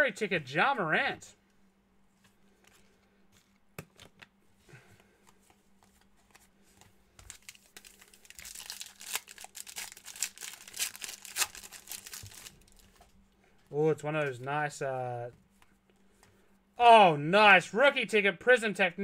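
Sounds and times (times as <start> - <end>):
foil pack crinkling: 7.2 - 13.1.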